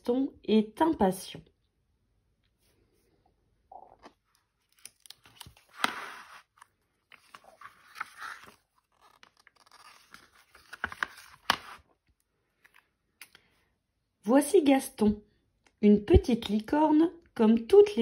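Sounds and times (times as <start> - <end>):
book pages turning: 4.0 - 13.0.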